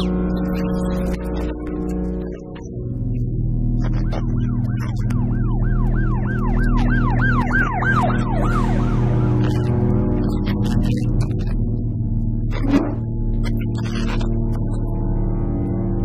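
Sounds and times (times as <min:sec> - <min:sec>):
background music: 0:00.0 - 0:16.0
police siren yelping: 0:03.0 - 0:10.0.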